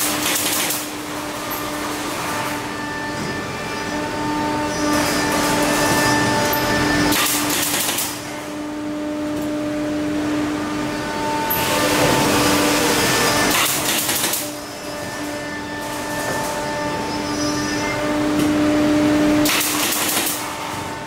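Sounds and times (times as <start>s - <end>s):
pneumatic nail gun clacks: 0.0s - 2.6s, 4.9s - 8.4s, 13.3s - 16.6s, 19.4s - 20.9s.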